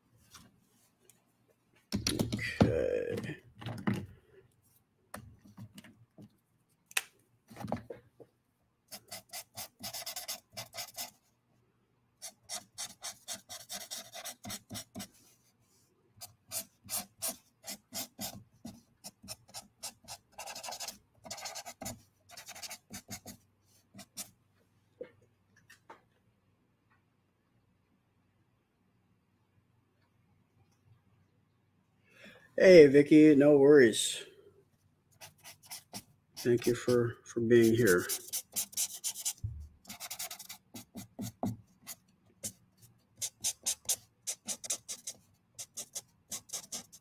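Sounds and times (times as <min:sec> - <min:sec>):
marker tip rubbing on paper: 0:08.9 - 0:11.2, 0:12.2 - 0:15.1, 0:16.2 - 0:23.4, 0:35.2 - 0:37.0, 0:37.6 - 0:41.6, 0:43.2 - 0:47.0.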